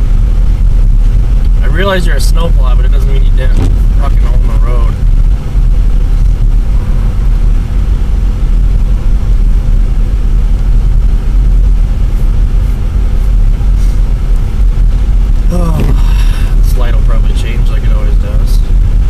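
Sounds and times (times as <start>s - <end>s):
car engine and tyres rumbling: 0.0s - 19.0s.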